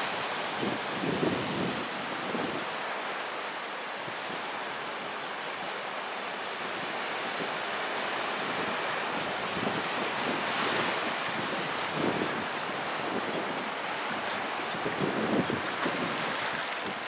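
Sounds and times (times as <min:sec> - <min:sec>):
small waves washing onto sand: 0:00.0 - 0:17.0
wind buffeting microphone: 0:08.4 - 0:17.0.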